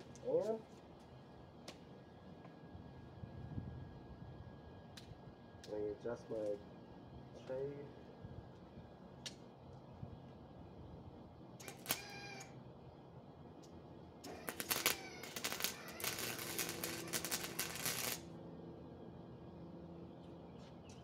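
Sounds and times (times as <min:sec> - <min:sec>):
welder arc crackling: 0:11.6 - 0:12.5, 0:14.2 - 0:18.4.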